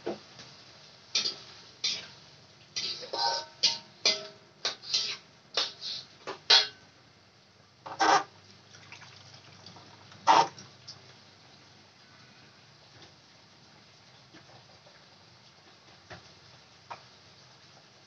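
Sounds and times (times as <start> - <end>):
metal spatula clinking on wok: 1.2 - 2.1, 2.8 - 5.8, 6.5 - 6.8
soup boiling faintly: 7.3 - 18.0.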